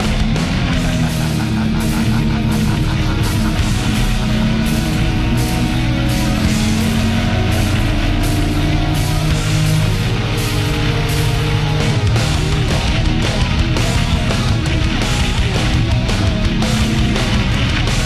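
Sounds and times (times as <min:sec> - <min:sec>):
heavy rock music: 0:00.0 - 0:18.0.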